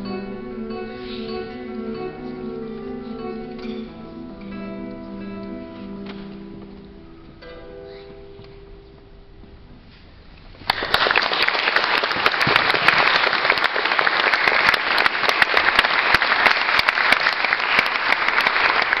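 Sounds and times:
audience applause: 0:10.6 - 0:19.0.

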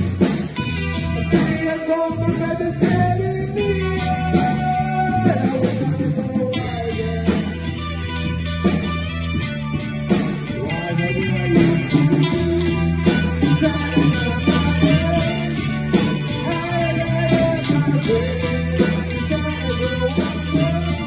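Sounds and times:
bass guitar: 0:00.0 - 0:21.0
distorted electric guitar: 0:00.0 - 0:21.0
drum kit beat: 0:00.0 - 0:21.0.

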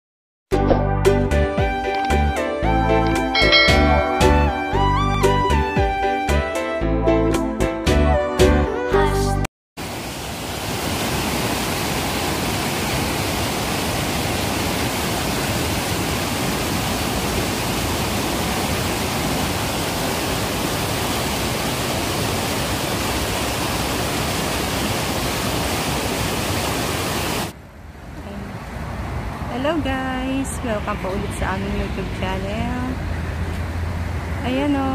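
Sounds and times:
water rushing down channel: 0:09.8 - 0:27.6.

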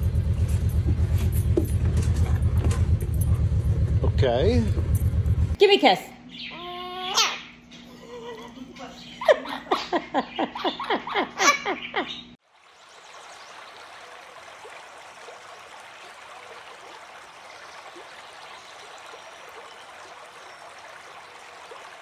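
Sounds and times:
person laughing: 0:07.9 - 0:12.2
water trickling: 0:12.4 - 0:22.0.

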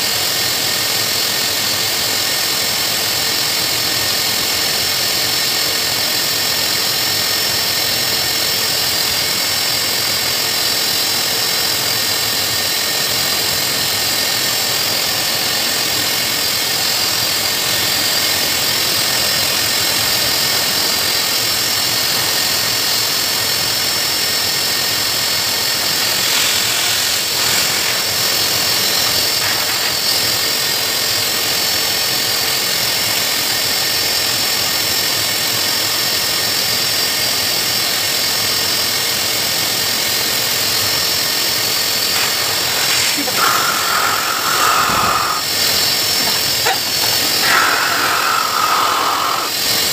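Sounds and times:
pet blower dryer rushing air: 0:00.0 - 0:49.9
motor whine: 0:24.4 - 0:30.7, 0:40.9 - 0:49.9.

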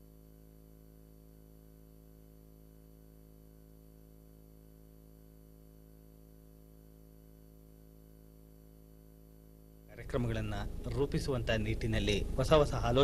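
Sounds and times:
low hum: 0:08.4 - 0:13.0.

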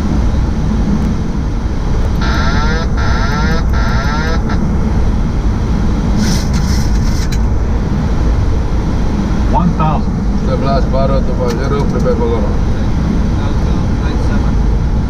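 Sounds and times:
airflow and engine rushing: 0:00.0 - 0:15.0
warbling electronic alert: 0:02.2 - 0:04.7.

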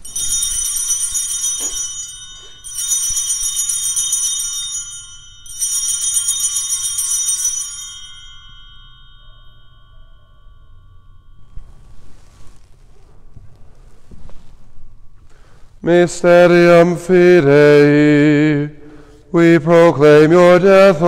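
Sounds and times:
bells jingling: 0:00.0 - 0:13.7.

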